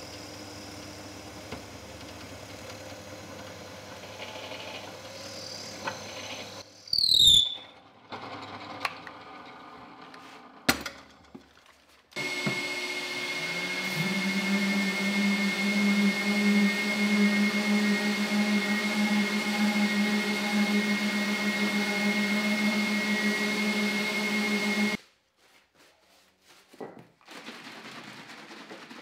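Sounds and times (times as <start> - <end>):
drill press cutting wood: 0.0 - 6.6, 12.2 - 25.0
orbital sander whistling: 5.0 - 7.8, 12.2 - 25.0
high squeal falling in pitch: 6.9 - 7.7.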